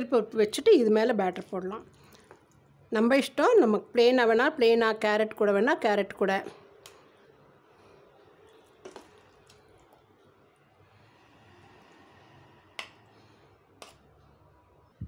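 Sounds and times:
soft wet squelches of batter: 0:01.3 - 0:02.9, 0:06.6 - 0:14.5.

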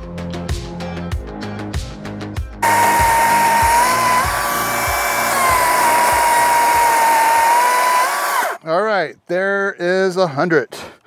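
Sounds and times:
chainsaw cutting wood: 0:02.6 - 0:08.6.

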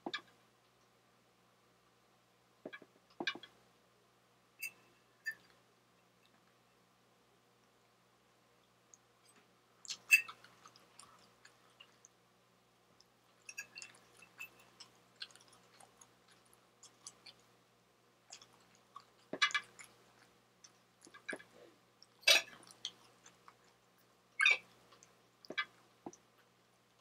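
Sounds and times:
chewing: 0:08.9 - 0:12.2, 0:13.0 - 0:17.6, 0:18.2 - 0:27.0.

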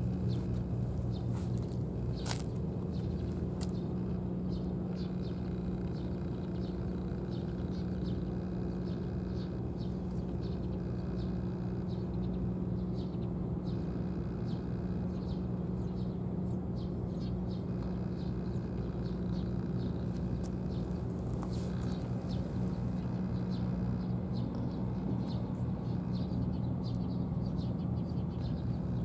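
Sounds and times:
low machine hum: 0:00.0 - 0:29.0.

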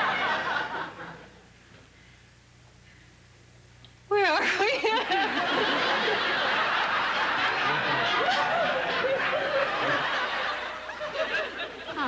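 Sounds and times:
crowd laughing: 0:00.0 - 0:01.4, 0:04.5 - 0:12.0.

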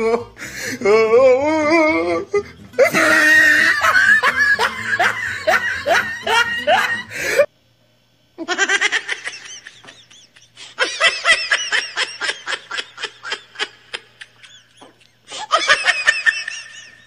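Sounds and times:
high-pitched giggling laughter: 0:02.8 - 0:07.5, 0:08.4 - 0:17.0.

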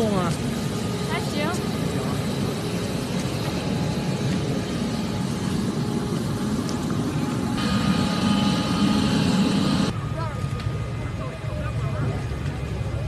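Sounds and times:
aircraft engines rumbling: 0:00.0 - 0:13.0
thin high whine: 0:07.2 - 0:10.3.

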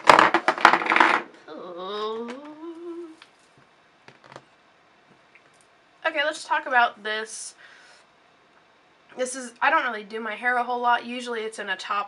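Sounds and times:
woman humming: 0:01.4 - 0:03.2.

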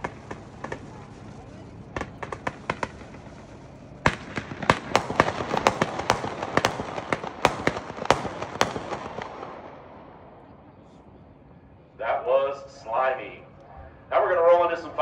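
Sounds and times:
fireworks crackling: 0:00.0 - 0:09.7
firework bangs: 0:00.0 - 0:10.2.

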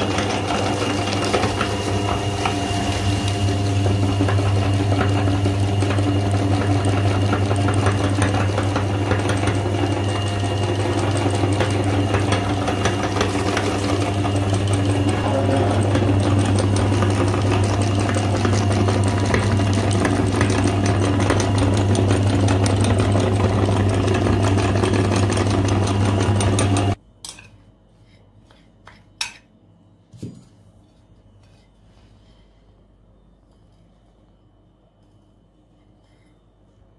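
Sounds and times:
electric meat grinder motor: 0:00.0 - 0:27.0.

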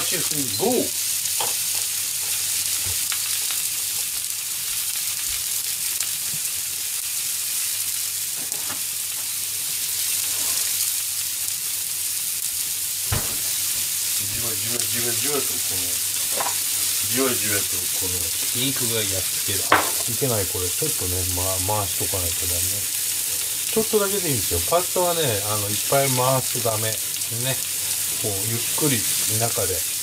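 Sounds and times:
meat sizzling in a frying pan: 0:00.0 - 0:30.0
pan of water boiling: 0:00.0 - 0:30.0
sharp knock: 0:13.1 - 0:13.5.

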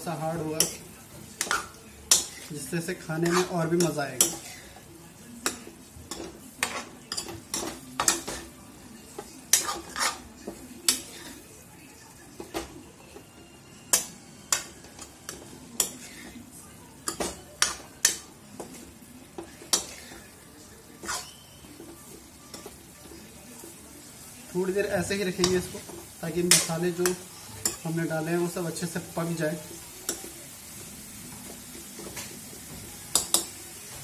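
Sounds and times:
chicken sizzling in oil: 0:00.0 - 0:34.0
metal spoon clinking and scraping pan: 0:00.1 - 0:04.8, 0:05.4 - 0:08.5, 0:09.2 - 0:11.4, 0:13.9 - 0:16.4, 0:17.0 - 0:18.8, 0:19.4 - 0:20.4, 0:21.0 - 0:23.8, 0:24.6 - 0:30.4, 0:33.1 - 0:34.0.

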